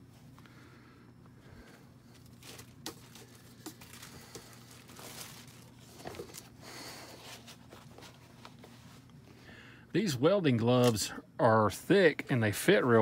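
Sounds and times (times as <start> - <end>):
faint low hum: 0.0 - 13.0
plastic and cardboard rustling: 2.1 - 9.1.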